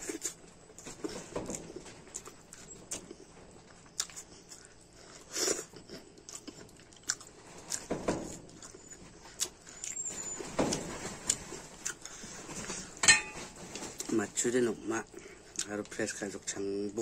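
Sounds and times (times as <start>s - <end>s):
chewing and wet mouth smacks: 3.8s - 7.8s.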